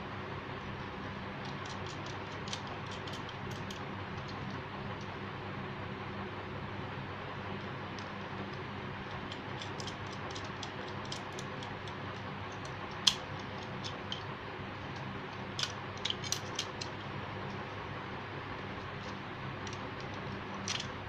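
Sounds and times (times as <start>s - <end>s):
steady low hum: 0.0s - 21.0s
small metallic clicks: 1.4s - 4.6s, 9.1s - 14.3s, 14.9s - 17.1s, 18.9s - 20.9s.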